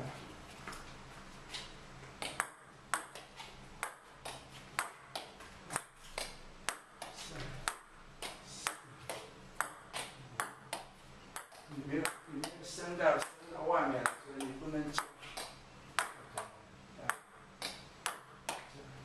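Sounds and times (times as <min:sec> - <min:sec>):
table tennis ball clicks: 0:02.2 - 0:12.6, 0:14.0 - 0:18.7.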